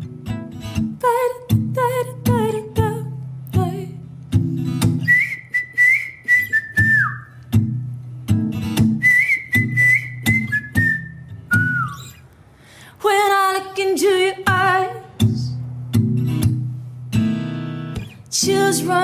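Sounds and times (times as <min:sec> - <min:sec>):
acoustic guitar strumming: 0:00.0 - 0:12.2, 0:14.0 - 0:19.0
whistled melody: 0:05.0 - 0:07.4, 0:08.9 - 0:12.2
person singing: 0:18.3 - 0:19.0.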